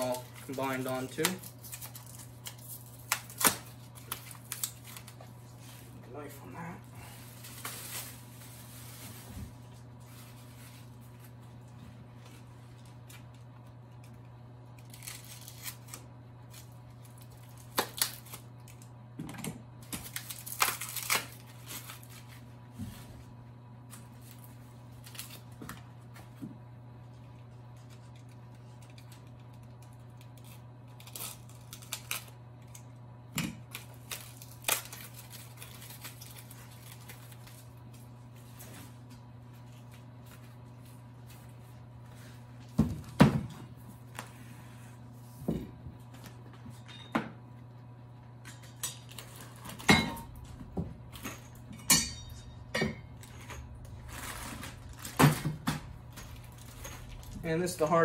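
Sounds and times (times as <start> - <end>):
plastic packaging crinkling: 0.0 - 11.7, 14.7 - 19.0, 19.8 - 22.6, 33.6 - 41.8, 53.1 - 58.0
low hum: 43.6 - 58.0.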